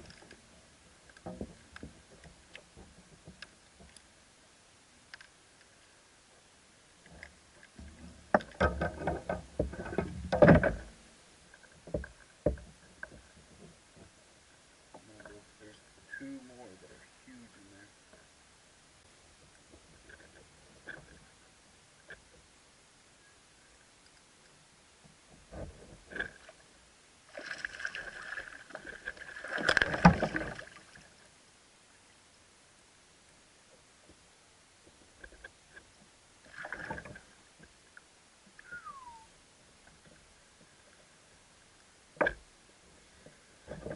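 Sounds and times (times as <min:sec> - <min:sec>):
thump with water splashing: 0:29.5 - 0:30.7.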